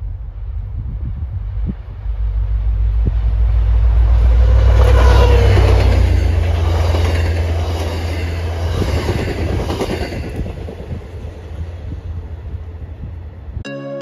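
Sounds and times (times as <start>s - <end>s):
train rumble: 0.0s - 13.6s
train wheels clattering on rails: 4.4s - 11.4s.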